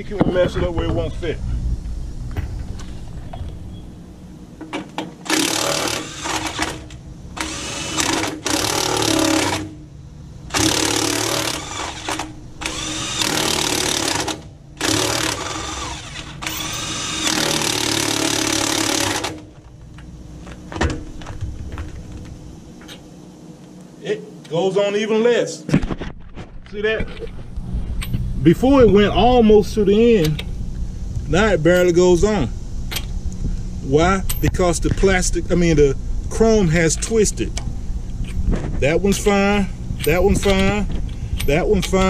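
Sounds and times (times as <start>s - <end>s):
impact wrench bursts: 5.2s - 9.8s, 10.5s - 19.6s.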